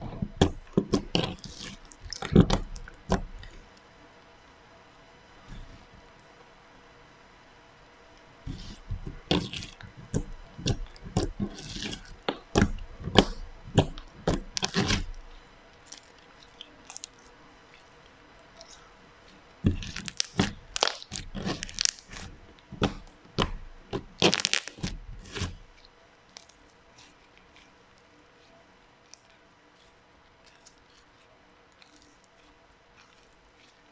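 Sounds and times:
slime crackling and popping: 0.1s - 3.6s, 8.5s - 18.8s, 19.4s - 27.8s.

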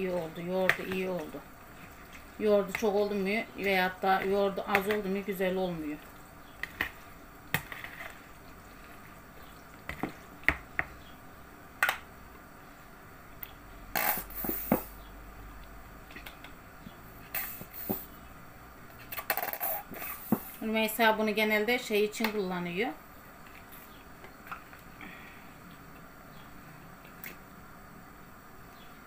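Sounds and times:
plastic squeeze bottle squeezed: 14.0s - 15.0s, 17.3s - 18.1s, 19.1s - 20.6s.

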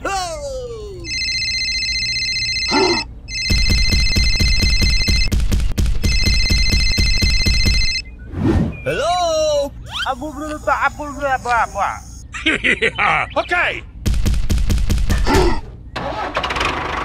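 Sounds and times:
phone ringtone: 1.0s - 5.3s, 6.0s - 8.1s.

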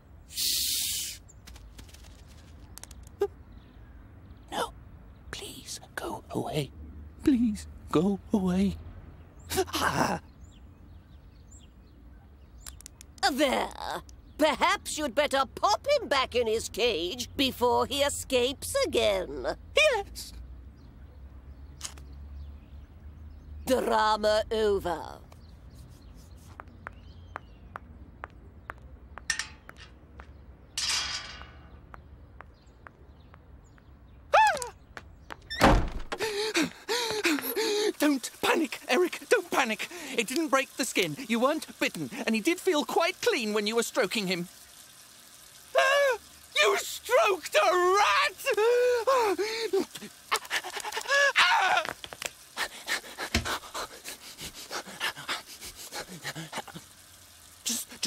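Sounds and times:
footsteps on paved path: 25.3s - 30.6s, 31.4s - 37.6s, 51.8s - 52.4s
man panting frantically: 36.2s - 38.0s, 52.6s - 56.6s
man crying out: 45.8s - 46.8s, 47.6s - 51.9s.

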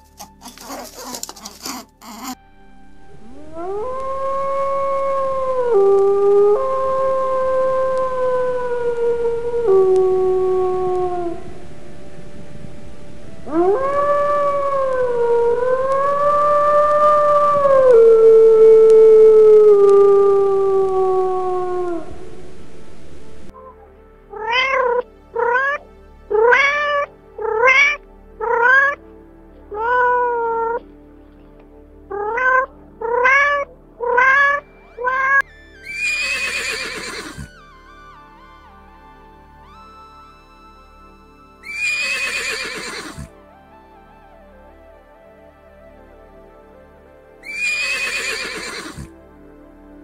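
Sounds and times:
wolf howling: 0.0s - 2.4s, 3.0s - 12.3s, 13.2s - 29.0s, 29.7s - 30.8s, 32.1s - 37.5s, 41.6s - 43.3s, 47.4s - 49.2s
cat meowing: 0.4s - 2.4s, 24.3s - 29.0s, 29.7s - 30.8s, 32.1s - 37.5s, 41.6s - 43.3s, 47.4s - 49.1s
horse call: 34.1s - 37.5s, 41.6s - 43.3s, 47.4s - 49.1s.

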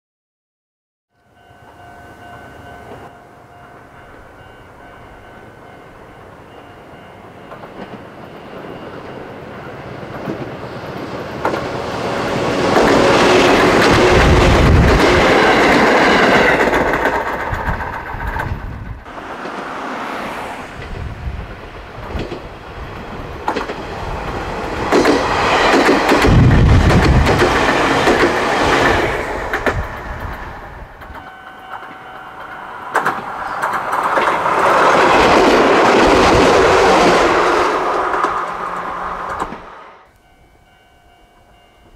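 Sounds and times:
electric train passing: 1.2s - 41.9s
wheels clacking over rail joints: 7.4s - 39.9s.

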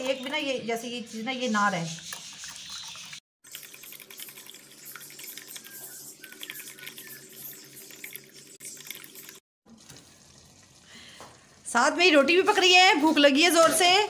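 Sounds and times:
liquid egg sloshing: 1.9s - 11.7s.

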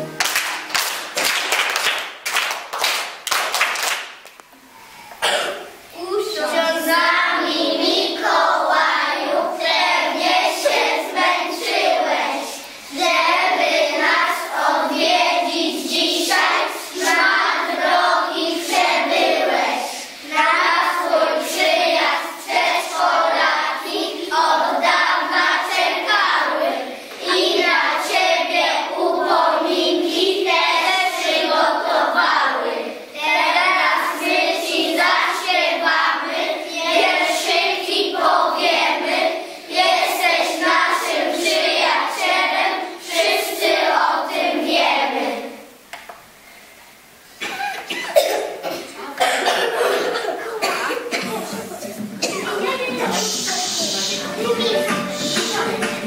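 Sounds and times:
children singing in unison: 6.2s - 45.7s, 48.2s - 56.0s.

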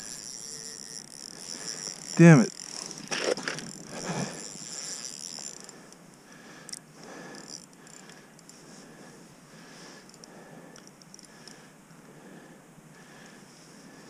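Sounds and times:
rod handling sounds: 0.0s - 5.8s
fishing reel ticking: 0.0s - 8.6s, 10.0s - 11.6s.

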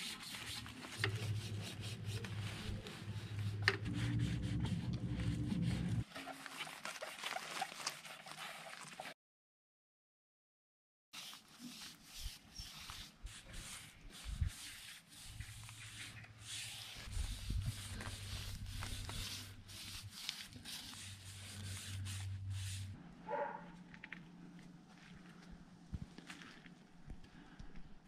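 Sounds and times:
applicator scrubbing a tyre: 0.0s - 6.1s, 11.2s - 23.0s
low steady hum: 1.0s - 6.0s.

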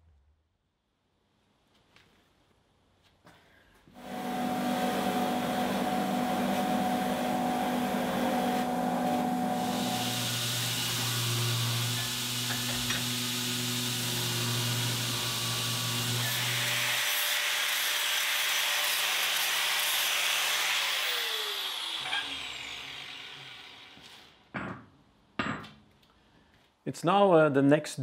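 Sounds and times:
angle grinder whine: 4.0s - 17.8s, 18.4s - 24.3s
belt grinder running: 4.0s - 24.4s.

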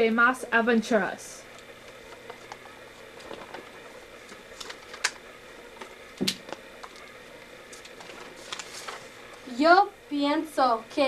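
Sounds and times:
paper puppets clicking and tapping: 1.6s - 5.2s, 5.8s - 9.1s.

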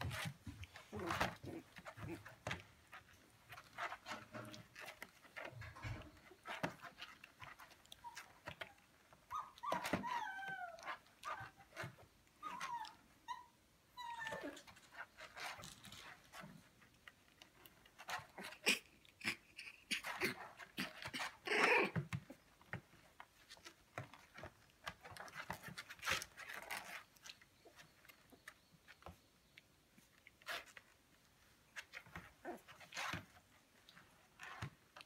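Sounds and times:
puppies yipping and whimpering: 0.8s - 15.4s, 18.1s - 22.7s.

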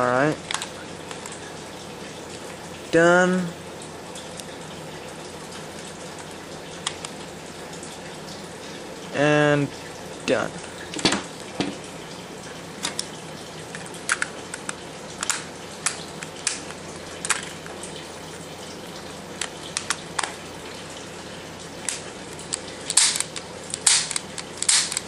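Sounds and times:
pistol parts clicking and tapping: 22.4s - 25.0s.

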